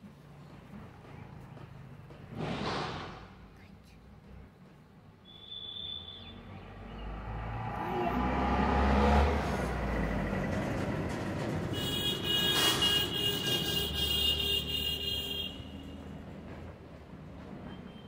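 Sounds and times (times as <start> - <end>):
vehicle passing with low rumble: 6.4 - 11.8.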